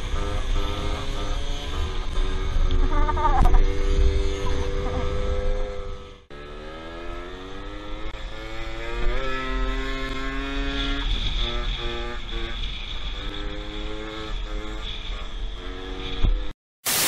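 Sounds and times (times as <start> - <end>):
wind rumble on microphone: 0.0 - 6.2
scooter engine accelerating: 0.0 - 16.5.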